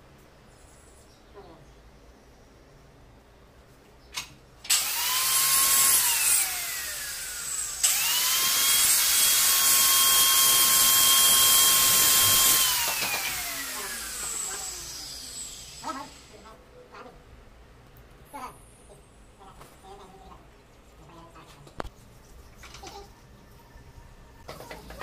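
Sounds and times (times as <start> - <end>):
electric tile cutter whining: 4.7 - 16.4.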